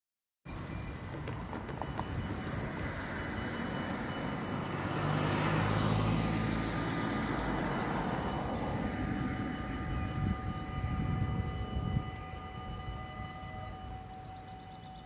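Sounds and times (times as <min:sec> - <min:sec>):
cars driving past: 0:02.4 - 0:09.8.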